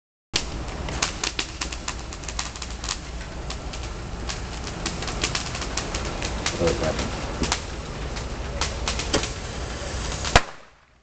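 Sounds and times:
firework cracks and pops: 0.4 - 11.0
firework hissing: 0.4 - 11.0.

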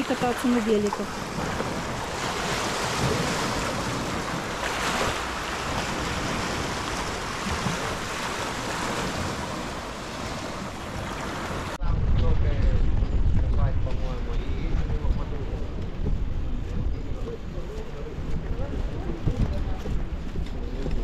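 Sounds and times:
waves lapping on shingle shore: 0.0 - 11.8
wind rumble on microphone: 0.0 - 21.0.

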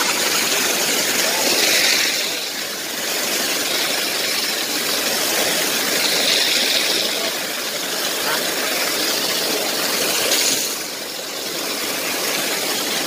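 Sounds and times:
water jet splashing into pool: 0.0 - 13.0.

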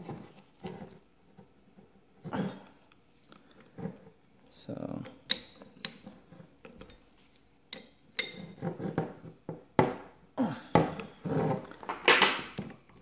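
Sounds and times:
scraping and handling sounds: 0.0 - 4.3, 5.5 - 7.5, 8.2 - 10.0, 10.8 - 13.0.

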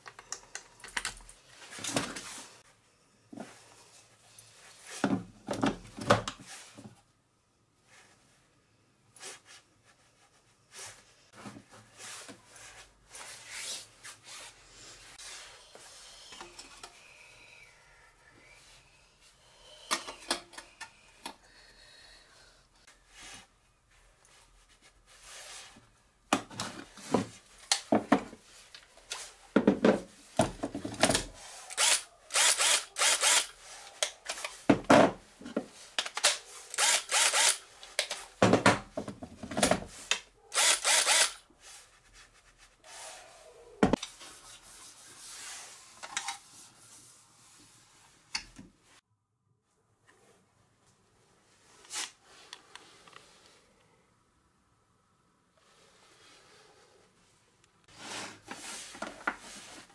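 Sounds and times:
drill battery pack scraping and clicking: 31.7 - 34.5, 36.0 - 38.2, 40.5 - 41.4.

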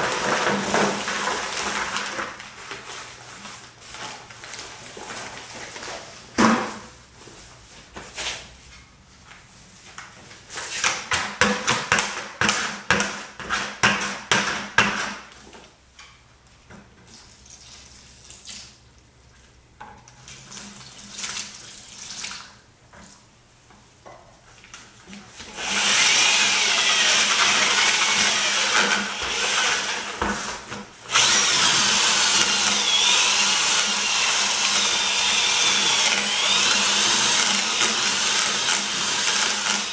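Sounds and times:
drill with paddle mixer churning: 25.5 - 30.3, 31.1 - 39.9.

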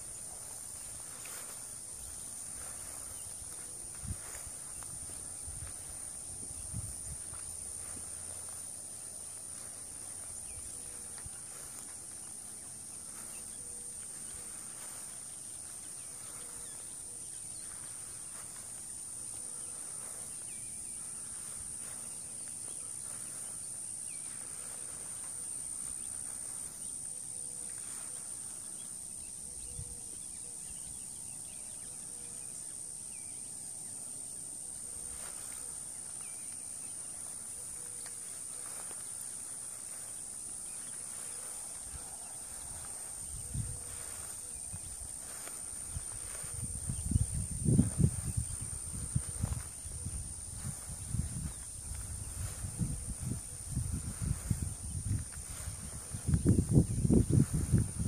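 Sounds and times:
high-pitched insect hum: 0.0 - 58.0
faint bird chirps: 19.4 - 33.5.

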